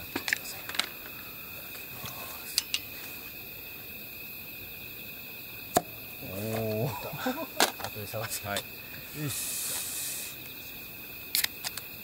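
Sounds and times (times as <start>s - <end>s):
high-pitched insect drone: 0.0s - 12.0s
camp gear clicks: 11.3s - 11.9s.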